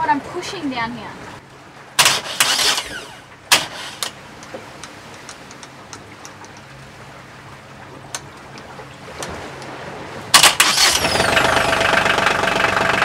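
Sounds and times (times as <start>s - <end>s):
low hum: 2.0s - 4.2s.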